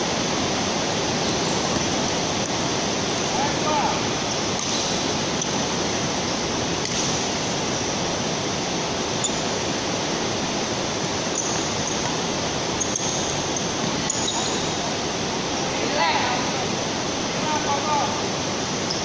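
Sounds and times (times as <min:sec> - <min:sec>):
steady rushing noise: 0:00.0 - 0:18.9
racket hitting shuttlecock: 0:04.6 - 0:04.9
shoes squeaking on court: 0:11.3 - 0:12.2, 0:12.8 - 0:14.7.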